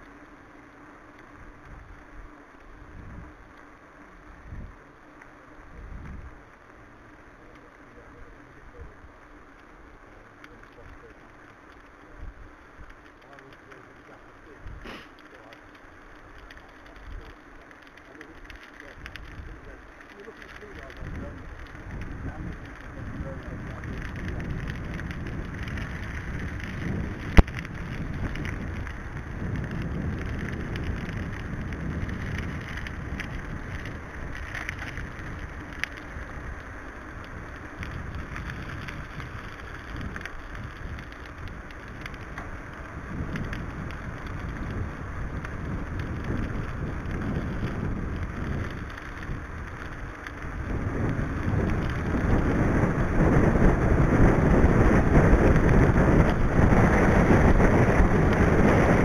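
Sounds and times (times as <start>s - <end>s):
bike tyres rolling on tarmac: 0.0s - 59.0s
wind buffeting microphone: 18.2s - 59.0s.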